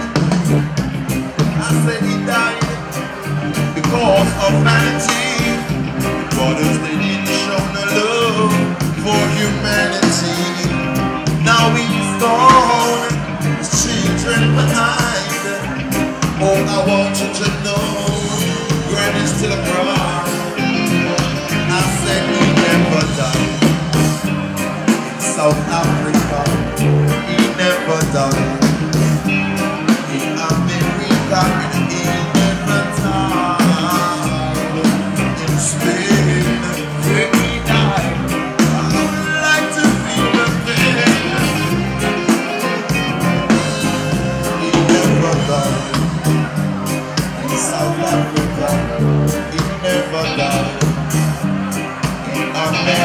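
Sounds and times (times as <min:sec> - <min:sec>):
person singing: 0:00.0 - 0:53.0
reggae band playing: 0:00.0 - 0:53.0.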